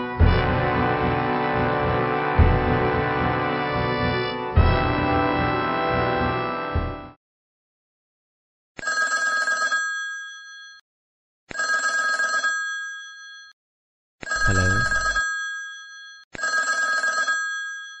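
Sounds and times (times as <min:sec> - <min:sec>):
electronic phone ringing: 0:14.2 - 0:18.0.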